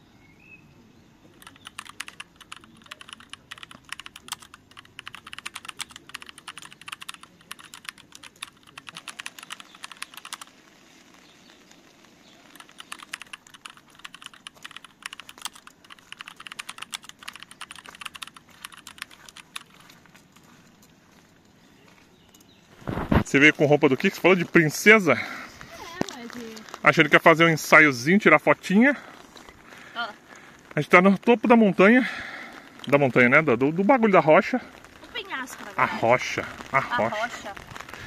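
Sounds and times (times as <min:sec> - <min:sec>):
keyboard typing clicks: 0:01.4 - 0:10.5, 0:12.5 - 0:19.8.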